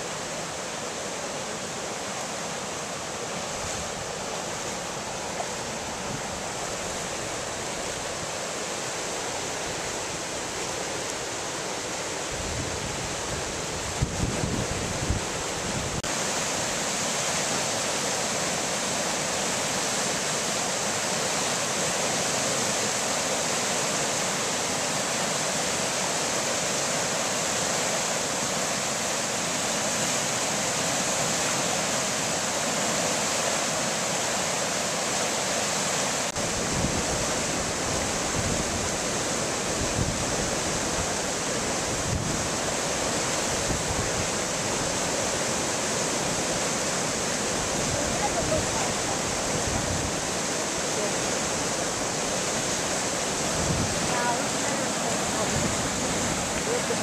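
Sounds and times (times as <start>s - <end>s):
river rushing over rapids: 0.0s - 57.0s
wind buffeting microphone: 12.3s - 16.1s, 39.8s - 42.8s, 47.6s - 50.5s, 53.2s - 54.5s.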